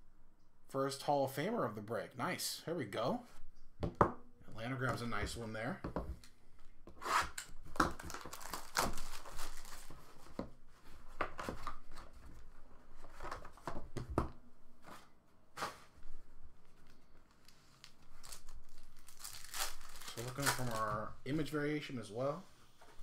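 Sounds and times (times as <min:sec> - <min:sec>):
plastic wrap tearing and crinkling: 0:07.1 - 0:10.2, 0:17.3 - 0:21.1.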